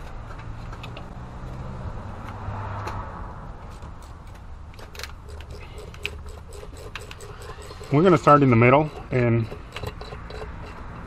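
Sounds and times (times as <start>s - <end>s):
tools clicking on engine cover: 3.7s - 11.0s.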